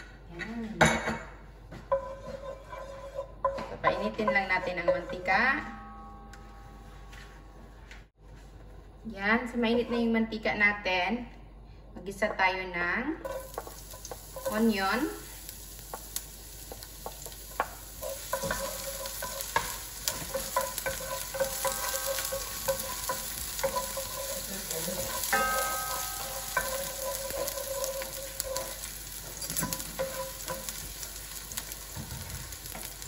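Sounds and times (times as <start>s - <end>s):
wooden spoon scraping a pan: 1.7s - 5.6s, 15.8s - 33.0s
onion sizzling in a frying pan: 13.2s - 33.0s.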